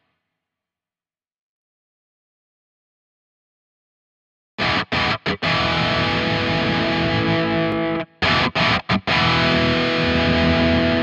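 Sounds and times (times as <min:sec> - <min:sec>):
distorted electric guitar: 0:04.6 - 0:11.0.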